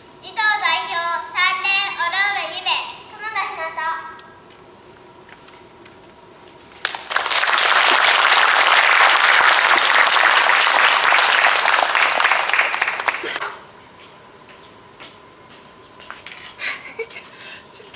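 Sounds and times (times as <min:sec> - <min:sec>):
audience applauding: 0:06.7 - 0:13.4.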